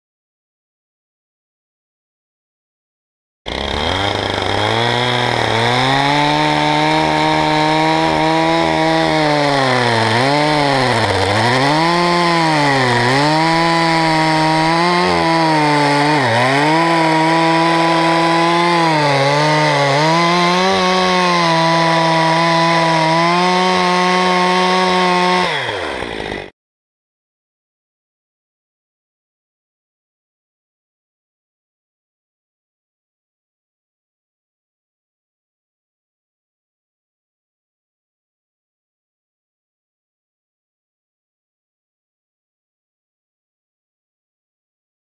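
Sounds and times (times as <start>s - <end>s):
chainsaw cutting into log: 3.5s - 26.5s.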